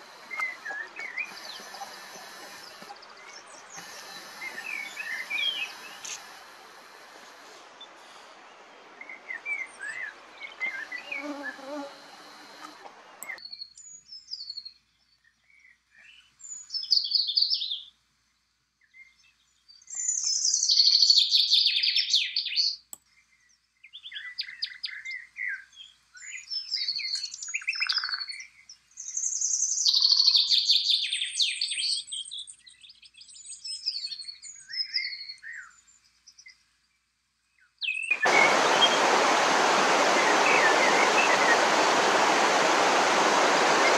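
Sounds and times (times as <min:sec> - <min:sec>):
mountain stream rushing: 0:00.0 - 0:13.2, 0:38.1 - 0:43.9
outdoor noise: 0:00.0 - 0:43.9
songbird chirping and trilling: 0:13.2 - 0:18.0, 0:18.8 - 0:36.6, 0:37.5 - 0:38.4.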